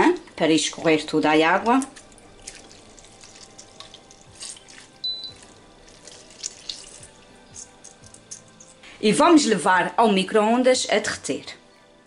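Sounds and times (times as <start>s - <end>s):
water dripping into a bowl: 0.0s - 8.8s.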